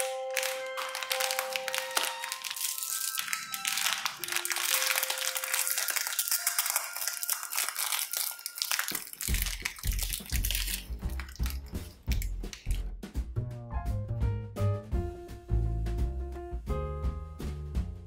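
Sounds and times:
plastic wrappers crinkling: 0.0 - 12.8
music with bass and beat: 9.4 - 18.0.

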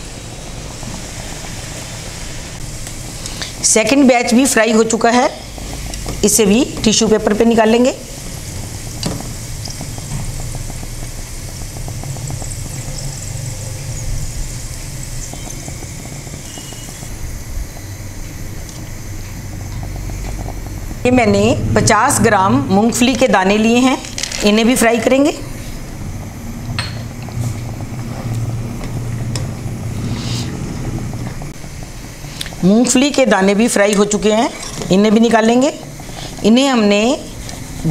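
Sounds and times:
potato sizzling in hot oil: 0.0 - 37.9
steady low hum: 0.0 - 37.9
steady low rumble: 17.2 - 30.0.

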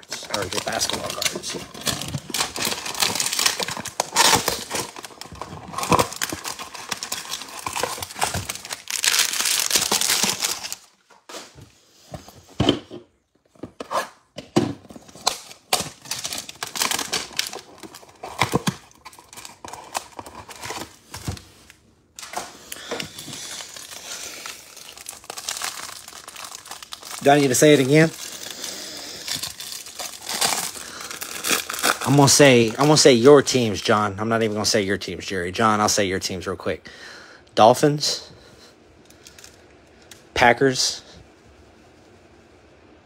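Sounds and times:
plastic wrapping crinkling and tearing: 0.0 - 11.1, 15.0 - 33.7, 39.1 - 40.2.

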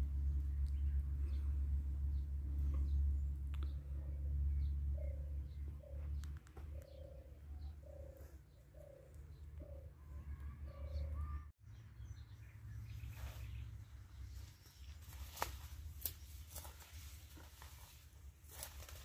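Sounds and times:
low rumble: 0.0 - 7.8
small birds chirping: 0.2 - 19.0
dove cooing: 5.0 - 11.5.

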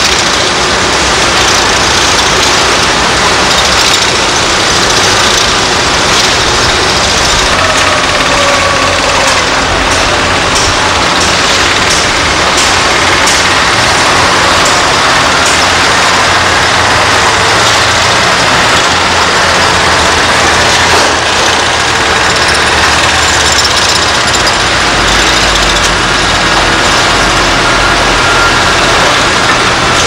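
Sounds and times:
construction machinery noise: 0.0 - 30.0
diesel truck engines running: 0.0 - 30.0.

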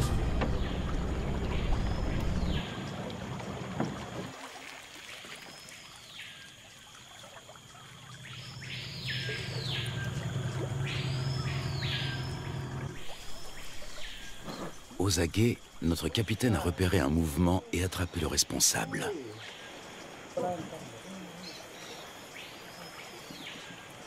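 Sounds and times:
outboard motor running: 8.4 - 16.0.

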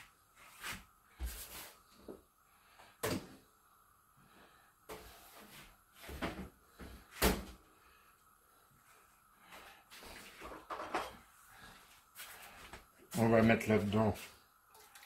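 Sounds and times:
kitchen things knocking and clattering: 10.4 - 11.2.

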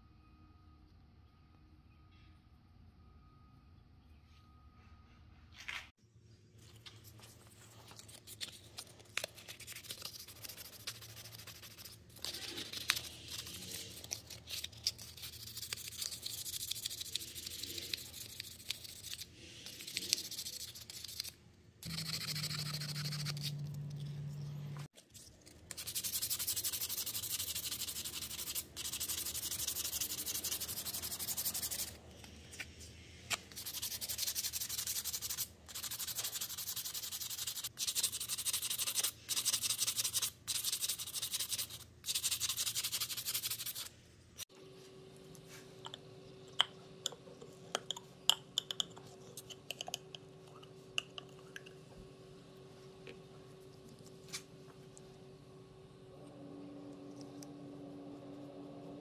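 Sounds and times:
steady low hum: 6.3 - 24.9, 25.7 - 59.0
sandpaper scratching on wood: 33.6 - 43.9.

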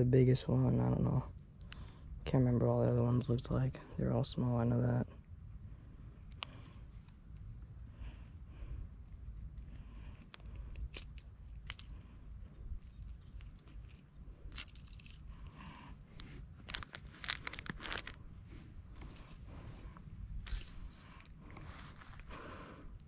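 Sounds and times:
low steady rumble: 0.0 - 23.0
small clicks and scrapes: 6.2 - 18.2, 18.9 - 22.3
rustling and crunching dry grass: 6.5 - 23.0.

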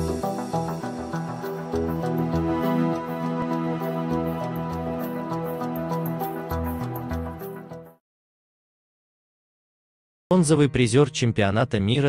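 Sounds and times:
electronic synth music: 0.0 - 8.0.

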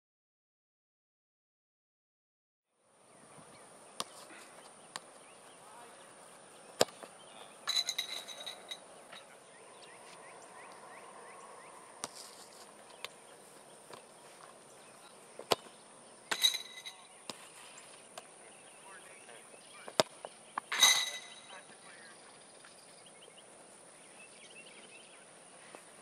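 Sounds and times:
foot kicking ball thumps: 4.0 - 5.2, 6.7 - 7.2, 15.4 - 17.5.

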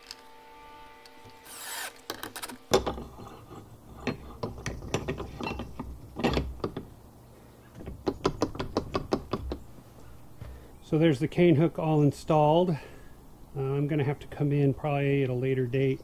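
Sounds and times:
cordless drill running: 1.1 - 2.6
gate bolt clicking and clanking: 2.1 - 7.0.

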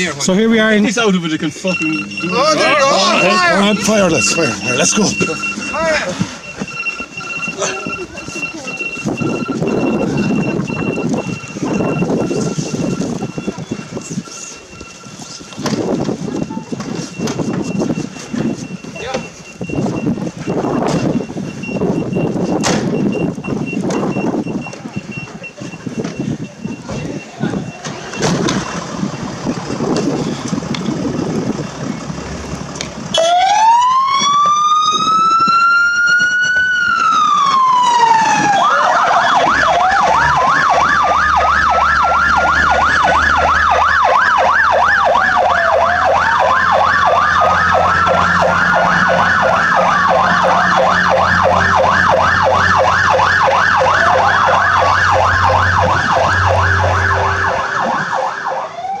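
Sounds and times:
siren slow wail: 1.5 - 22.6, 33.1 - 59.0
siren fast yelp: 1.7 - 15.3, 33.1 - 59.0
low engine hum: 41.4 - 58.9.

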